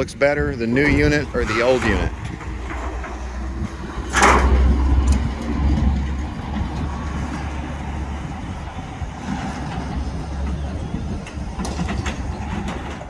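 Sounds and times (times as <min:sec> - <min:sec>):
vehicle engines rumbling: 0:00.0 - 0:13.0.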